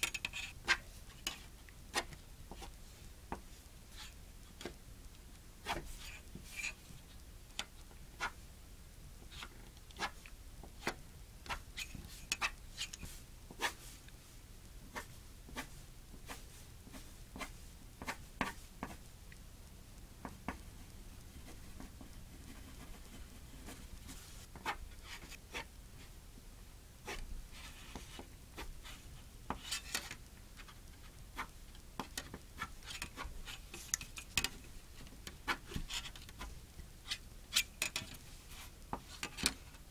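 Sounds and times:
pencil scratching on paper: 0:21.3 - 0:25.7.

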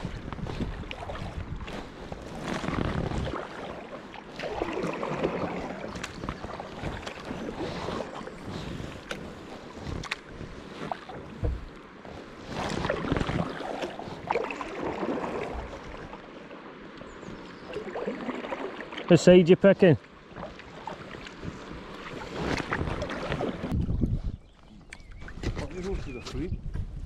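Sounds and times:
wind buffeting microphone: 0:00.0 - 0:03.6, 0:20.4 - 0:27.0
paddle splashing in water: 0:00.0 - 0:19.3, 0:20.0 - 0:24.1
paddle clicks: 0:00.1 - 0:11.9, 0:24.6 - 0:26.5.

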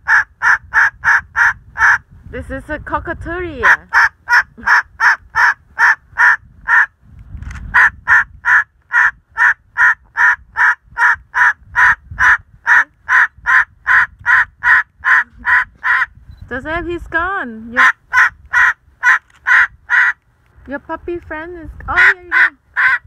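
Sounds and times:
cockatoo harsh barking calls: 0:00.0 - 0:02.0, 0:03.6 - 0:06.9, 0:07.7 - 0:16.2, 0:17.8 - 0:20.2, 0:22.0 - 0:23.0.

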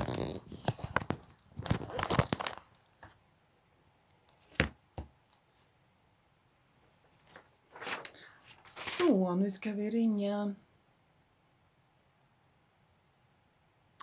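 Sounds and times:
phone handling rustling and scraping: 0:00.0 - 0:03.2.

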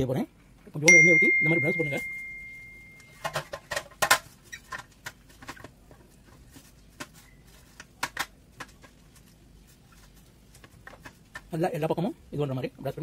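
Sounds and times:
faint ringing tone: 0:00.9 - 0:03.4.

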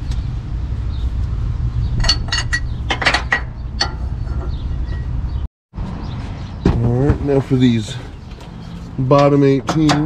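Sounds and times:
metal tools clinking: 0:02.0 - 0:05.1.

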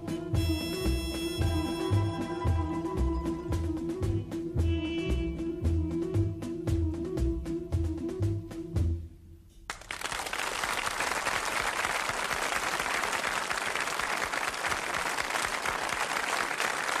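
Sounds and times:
military march music: 0:00.0 - 0:09.0
audience applause: 0:09.7 - 0:17.0.

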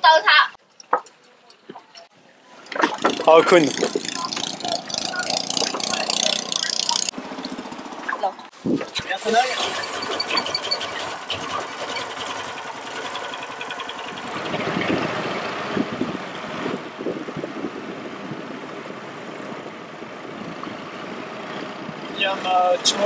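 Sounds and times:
motorboat engine running: 0:02.6 - 0:08.5, 0:09.5 - 0:18.7.

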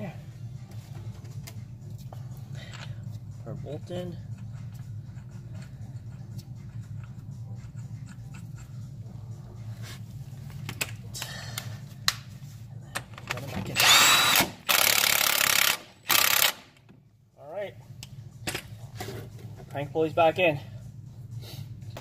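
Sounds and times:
low steady hum: 0:00.0 - 0:22.0
impact wrench bursts: 0:13.8 - 0:16.7.

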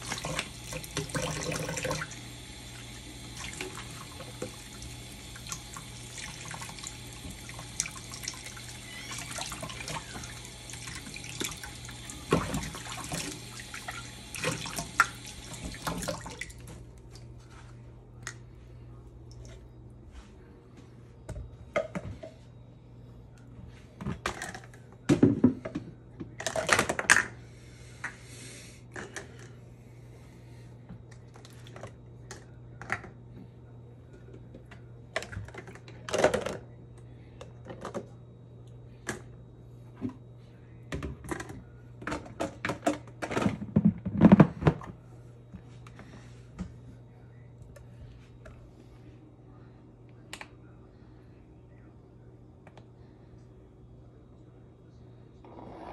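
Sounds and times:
faucet running into steel sink: 0:00.0 - 0:16.6.

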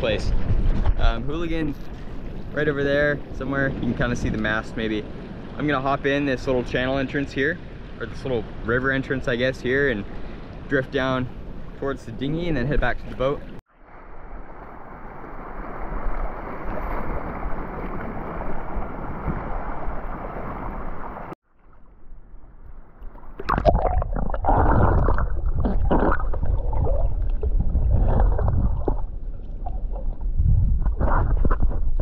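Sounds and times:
water rushing around wading legs: 0:15.5 - 0:21.4, 0:23.1 - 0:32.0
muffled underwater bubbling and sloshing: 0:23.0 - 0:32.0.

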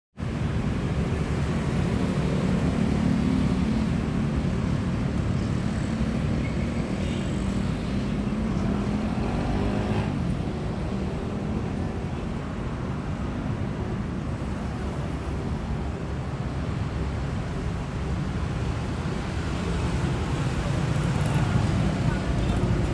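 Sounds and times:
city traffic rumble: 0:00.2 - 0:22.9
engine revving: 0:08.2 - 0:10.2.

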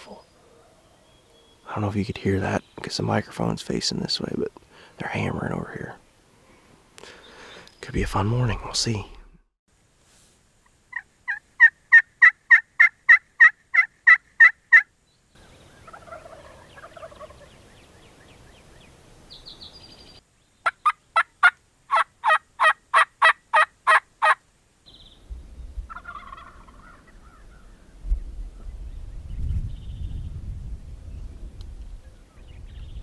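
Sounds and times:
distant turkeys gobbling: 0:10.9 - 0:14.9, 0:15.8 - 0:17.6, 0:20.6 - 0:24.4, 0:25.9 - 0:27.8
turkey yelps: 0:10.9 - 0:14.9, 0:15.8 - 0:17.4, 0:20.6 - 0:24.4, 0:25.9 - 0:27.7
small bird chirping: 0:15.0 - 0:21.2, 0:24.8 - 0:30.4.

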